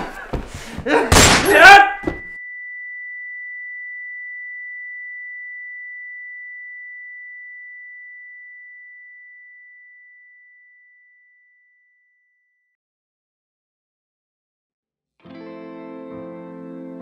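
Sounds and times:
high sine-wave ringing tone: 2.2 - 12.8.

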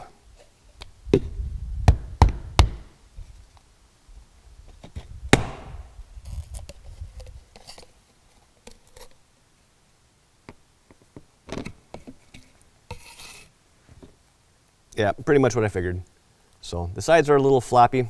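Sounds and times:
plastic cup scraping and crackling: 6.2 - 9.2, 11.5 - 13.5.

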